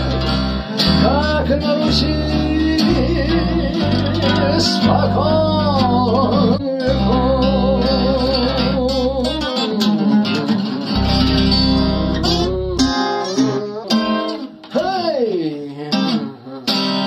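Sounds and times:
low bass notes: 0.0s - 9.5s, 10.9s - 13.6s
acoustic guitar accompaniment: 0.0s - 17.0s
held melody note with vibrato: 10.9s - 13.9s.

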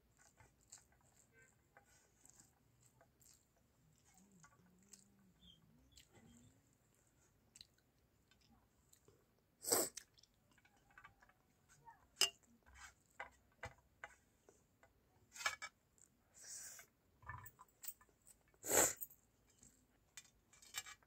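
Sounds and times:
fingers scraping rice on steel plate: 0.0s - 6.7s.

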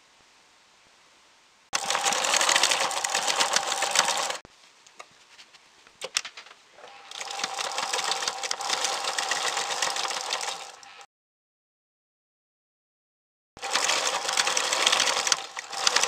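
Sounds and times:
sewing machine clicks: 1.8s - 4.4s, 6.0s - 11.1s, 13.6s - 16.0s
sewing machine stitching: 1.8s - 4.4s, 6.8s - 11.1s, 13.6s - 16.0s.

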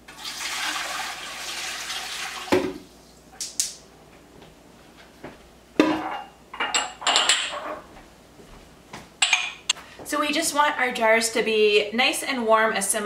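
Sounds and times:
water pouring into metal pot: 0.1s - 2.5s.

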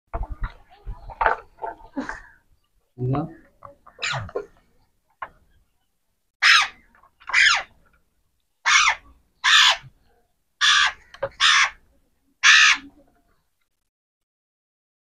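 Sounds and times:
parakeet harsh calls: 4.0s - 4.3s, 6.4s - 7.7s, 8.6s - 9.9s, 10.6s - 11.8s, 12.4s - 12.9s.

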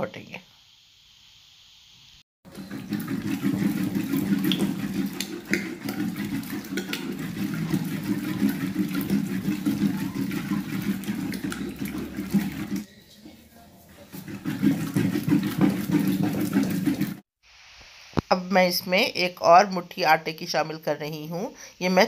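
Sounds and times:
masher squelching thick greens: 2.5s - 17.2s.

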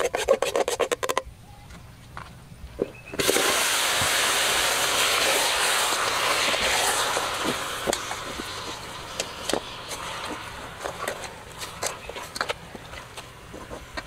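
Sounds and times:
meat sizzling in hot oil: 3.2s - 11.5s.

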